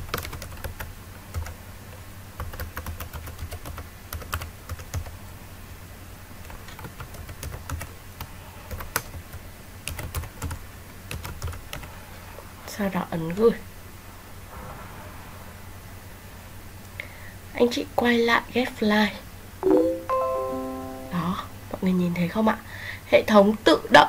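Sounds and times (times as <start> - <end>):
typing on computer keyboard: 0.0 - 1.6, 2.4 - 5.1, 6.5 - 8.0, 8.7 - 11.9.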